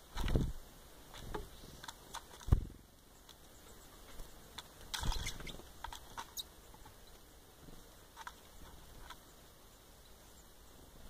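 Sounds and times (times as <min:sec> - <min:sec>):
thumps of birds landing: 0:00.1 - 0:00.6, 0:01.2 - 0:02.8
beaks pecking on plastic: 0:01.1 - 0:09.4.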